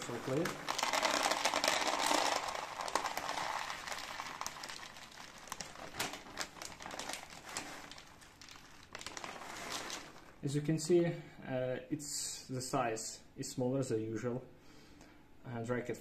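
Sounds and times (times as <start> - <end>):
kibble pouring into plastic tub: 0.0 - 10.4
plastic bag crinkling: 0.0 - 10.4.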